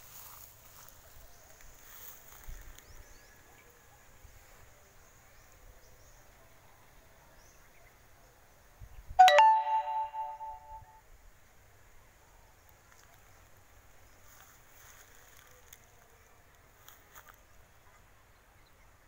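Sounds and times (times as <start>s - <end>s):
bell-like chime: 9.2s - 10.9s.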